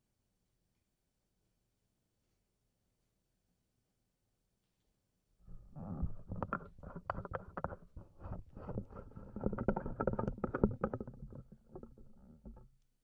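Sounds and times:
microphone handling knocks and bumps: 5.5 - 12.7.

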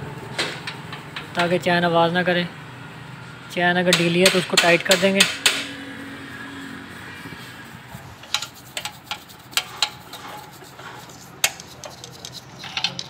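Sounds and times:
metal tool clicks and taps: 3.9 - 5.7.

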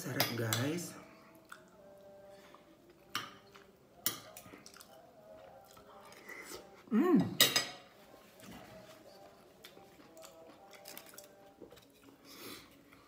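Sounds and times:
person humming: 4.3 - 7.4
cutlery clinking on plate: 7.3 - 7.9.

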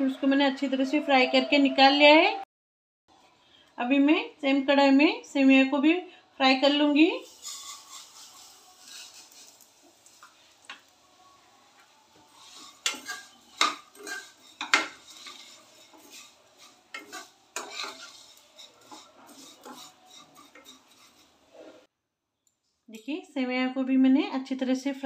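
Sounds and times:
metal spatula scraping pan: 7.1 - 10.9, 12.2 - 21.9.

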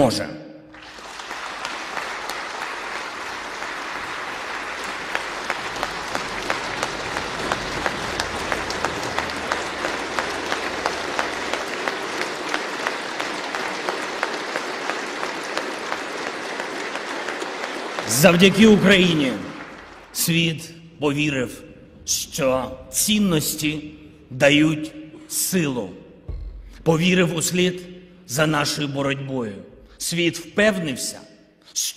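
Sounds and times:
audience applauding: 0.7 - 20.6
rhythmic clapping in unison: 0.7 - 20.7.

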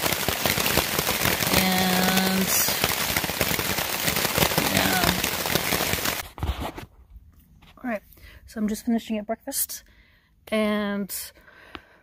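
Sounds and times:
heavy rain on a tent: 0.0 - 6.3.

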